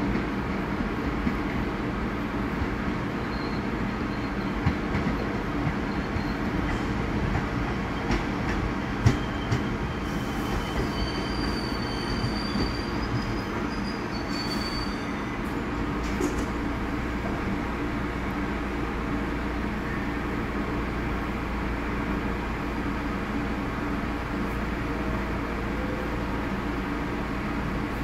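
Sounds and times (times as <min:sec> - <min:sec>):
subway train rumble: 0:00.0 - 0:28.0
high-pitched wheel squeal: 0:09.0 - 0:15.4.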